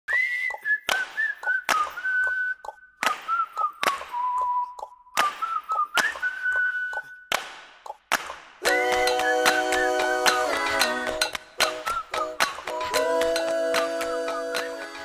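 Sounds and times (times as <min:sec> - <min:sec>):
whistled tune: 0:00.1 - 0:07.3, 0:08.6 - 0:15.0
sharp percussive hits: 0:07.3 - 0:15.0.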